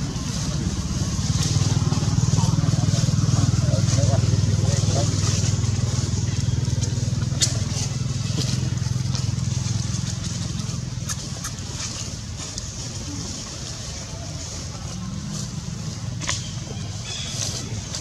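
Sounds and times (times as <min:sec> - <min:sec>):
engine humming: 0:00.0 - 0:18.0.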